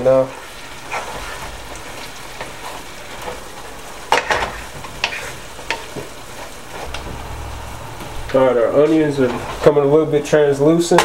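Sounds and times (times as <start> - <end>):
onions sizzling in a pan: 0.0 - 8.4.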